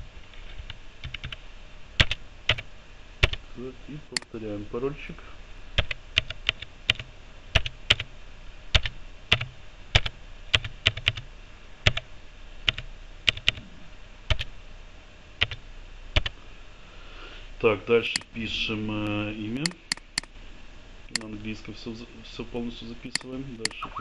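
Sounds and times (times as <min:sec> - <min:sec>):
keyboard keys clicking: 0:00.6 - 0:01.4, 0:02.0 - 0:02.6, 0:03.2 - 0:03.4, 0:07.6 - 0:08.1, 0:08.8 - 0:11.2, 0:12.7 - 0:13.6, 0:15.4 - 0:15.6, 0:16.2 - 0:16.4.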